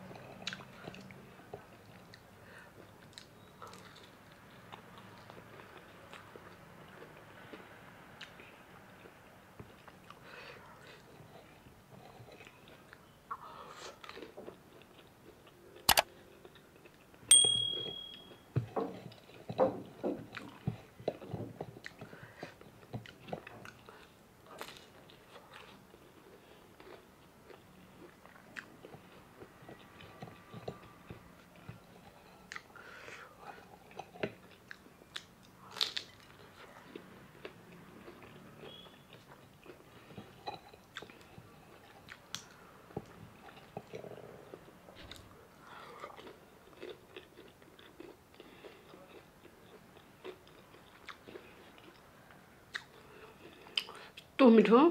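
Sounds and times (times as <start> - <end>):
chewing crunchy food: 0.0 - 17.2, 18.7 - 54.4
sharp click: 15.9 - 16.1
brief high ring: 17.3 - 18.4.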